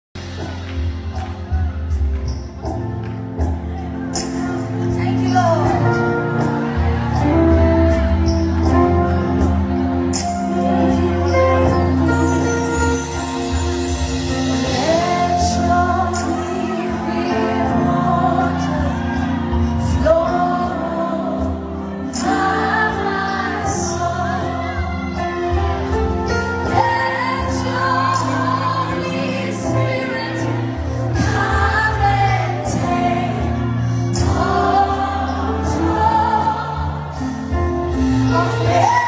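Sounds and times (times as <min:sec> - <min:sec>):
band playing: 0:00.2 - 0:39.0
woman singing gospel song: 0:14.4 - 0:25.6, 0:26.5 - 0:37.1, 0:38.0 - 0:39.0.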